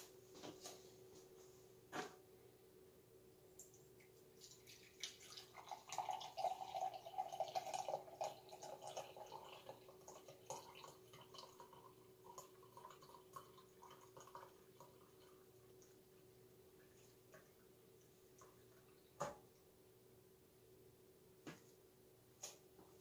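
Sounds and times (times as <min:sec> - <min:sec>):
faint steady hum: 0:00.0 - 0:23.0
coffee pouring into a mug: 0:03.6 - 0:19.2.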